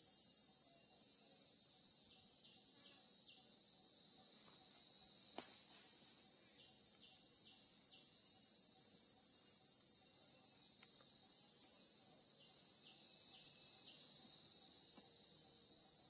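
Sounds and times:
insect chorus: 0.0 - 16.0.

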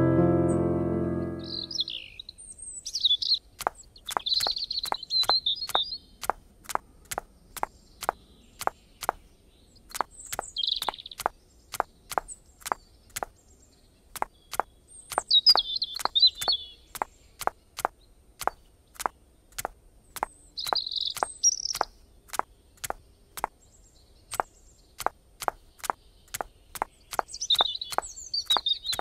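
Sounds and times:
bird chirping: 0.5 - 29.0
sharp clicks or knocks: 24.3 - 29.0.

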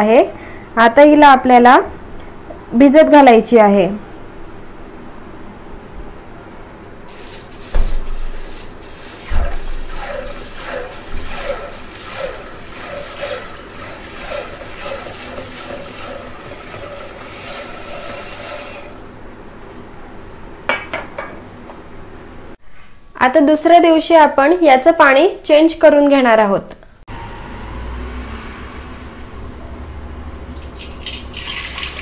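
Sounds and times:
grain pouring into water: 7.1 - 19.2, 30.6 - 32.0.

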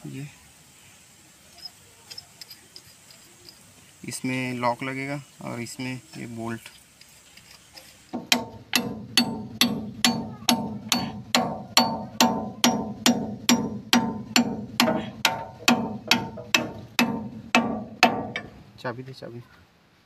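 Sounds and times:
hammer blows on steel: 8.2 - 18.6.

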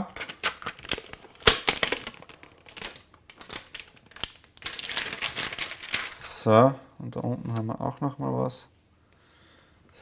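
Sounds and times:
plastic film crinkling: 0.1 - 6.4.

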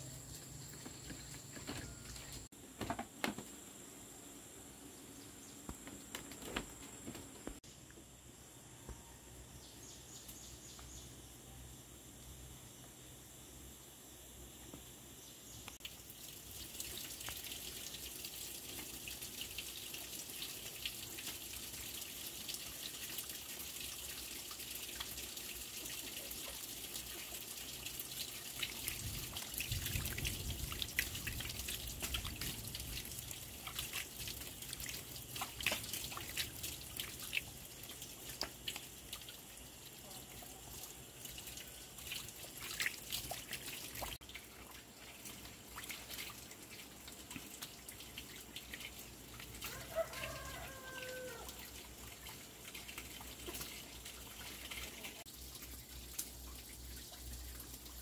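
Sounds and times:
water trickling and dripping: 0.0 - 2.5, 14.1 - 58.0.

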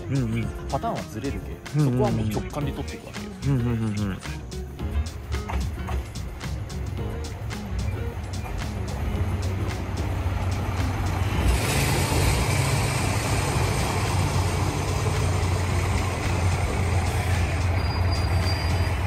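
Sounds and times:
train engine rumble: 0.0 - 19.0
hiss of brakes and wheels: 5.4 - 19.0
high brake squeal: 11.1 - 13.6, 17.0 - 19.0.

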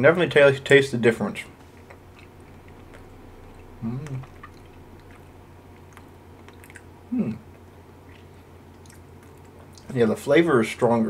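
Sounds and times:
person chewing: 1.6 - 9.9
person humming: 3.8 - 4.4, 7.1 - 7.5.

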